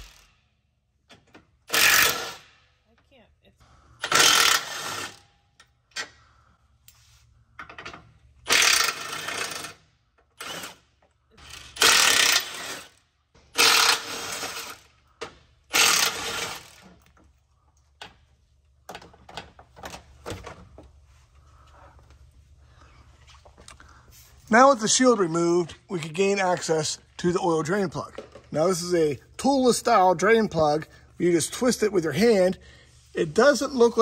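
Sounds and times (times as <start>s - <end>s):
cordless impact gun running: 1.7s - 2.5s, 4.0s - 5.2s, 8.5s - 9.8s, 11.4s - 12.9s, 13.6s - 14.8s, 15.7s - 16.8s
parts clicking and rattling: 3.9s - 21.0s.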